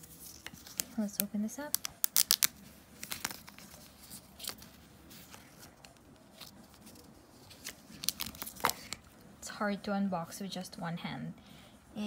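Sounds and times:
plastic wrap crinkling: 0.0s - 9.1s.

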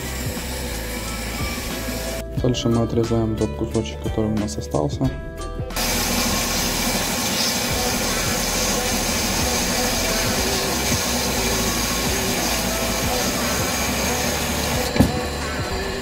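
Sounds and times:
band saw cutting steel: 0.0s - 2.2s, 5.8s - 16.0s.

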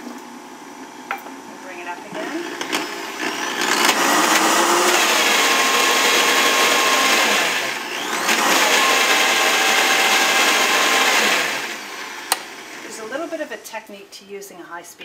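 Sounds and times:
blender motor running: 1.7s - 13.5s.

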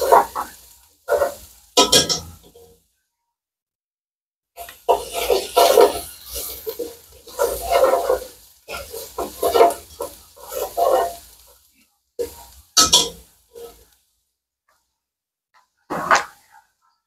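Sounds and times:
spatula scraping pot: 0.0s - 2.3s, 4.6s - 11.4s
onions frying: 0.0s - 2.8s, 4.6s - 14.3s, 15.8s - 16.7s.

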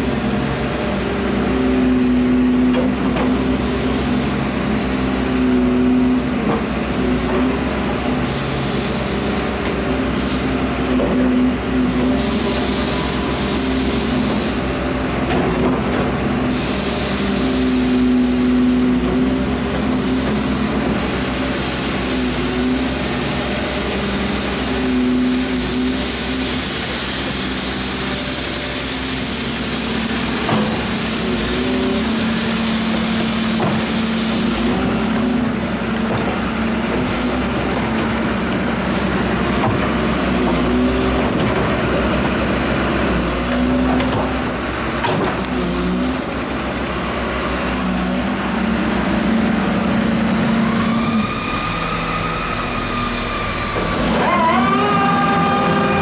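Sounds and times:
diesel engine idling: 11.5s - 56.0s.

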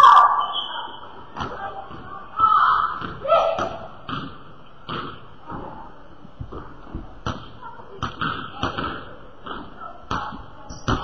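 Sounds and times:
basketballs bouncing on hardwood: 6.4s - 11.0s.

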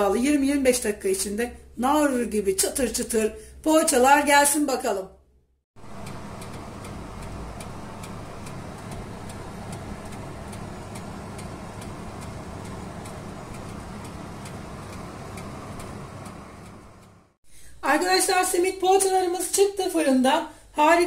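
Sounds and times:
light regular ticking: 5.8s - 17.3s
oven fan whirring: 5.8s - 17.4s.

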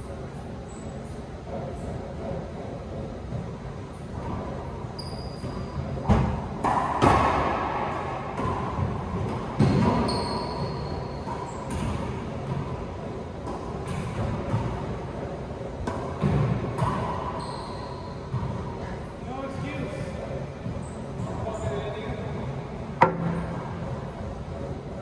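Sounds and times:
sneaker squeaks on hardwood: 3.9s - 6.4s, 9.5s - 12.0s, 16.2s - 18.9s.

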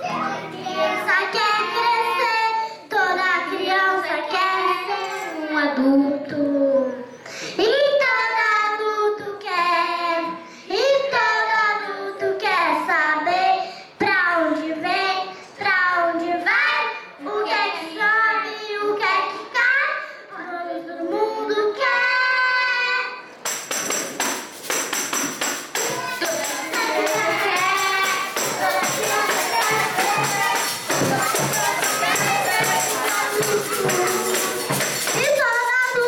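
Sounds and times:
girl singing into a microphone: 0.0s - 23.3s, 25.9s - 36.0s
short breaths: 7.2s - 7.6s, 10.4s - 10.7s, 13.6s - 14.0s.

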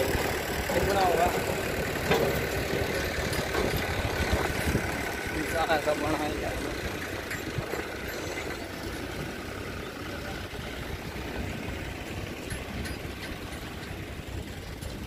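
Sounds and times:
dense low rumble: 0.0s - 15.0s
vehicle engine running: 0.0s - 15.0s.

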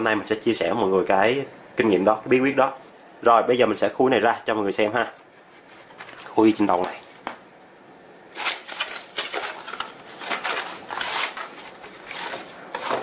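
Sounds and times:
cardboard rustling and scraping: 5.1s - 7.2s, 8.4s - 13.0s.

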